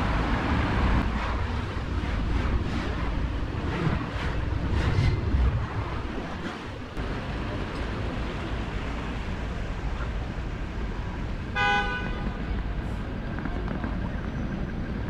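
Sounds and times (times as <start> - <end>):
street traffic: 0.0 - 15.0
vehicle horn toot: 11.5 - 12.4.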